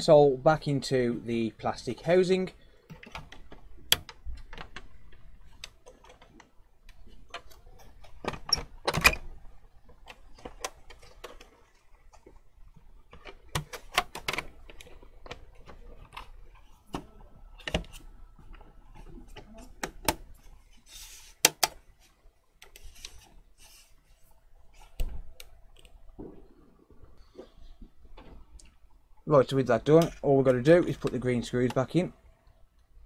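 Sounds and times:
plastic and metal clicks and knocks: 21.4s - 21.8s.

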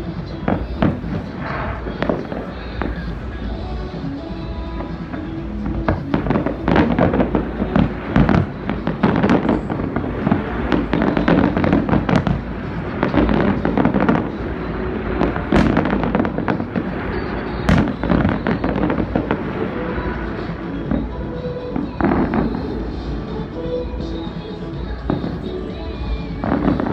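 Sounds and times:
fireworks crackling: 0.0s - 26.9s
sharp firework reports: 0.0s - 26.9s.

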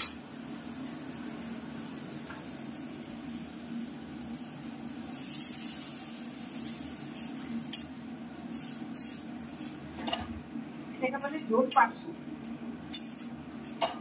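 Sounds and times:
water hissing in hot wok: 2.6s - 10.0s.

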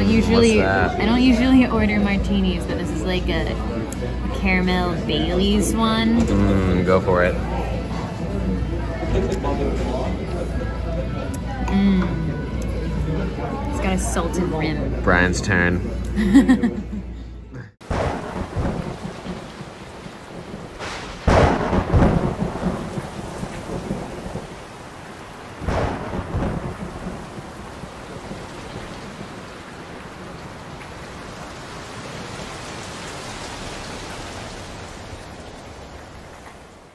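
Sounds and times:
steady rain: 0.0s - 10.4s, 17.8s - 36.9s
thunder peals: 17.8s - 36.4s.

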